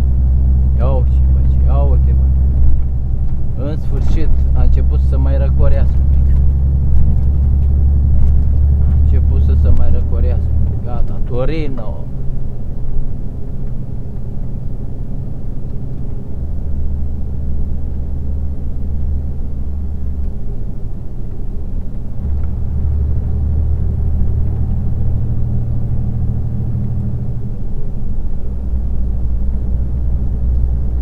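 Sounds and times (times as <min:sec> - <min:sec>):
car engine and road drone: 0:00.0 - 0:31.0.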